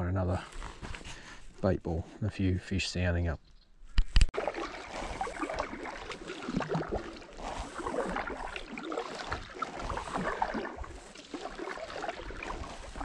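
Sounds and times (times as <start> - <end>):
paddle stroking through water: 4.4 - 13.0.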